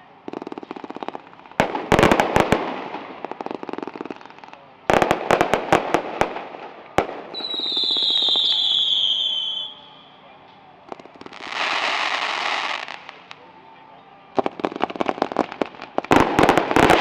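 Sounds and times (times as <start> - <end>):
firework crackling pops: 0.0 - 9.8, 10.8 - 13.5, 14.4 - 17.0
high falling whistle: 7.4 - 10.3.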